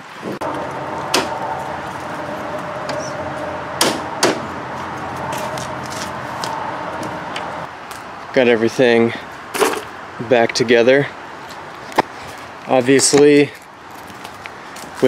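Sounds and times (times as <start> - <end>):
steady hum: 0.2 - 7.7.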